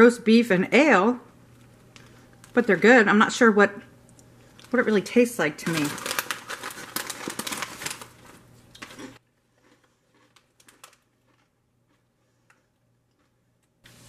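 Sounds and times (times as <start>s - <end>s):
crisp packet crinkling: 4.4s - 5.0s, 5.6s - 13.3s.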